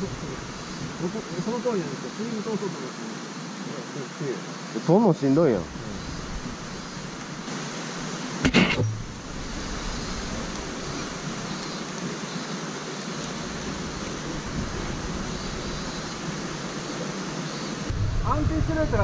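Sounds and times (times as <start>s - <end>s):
water rushing: 0.0s - 19.0s
sharp knock: 8.4s - 9.1s.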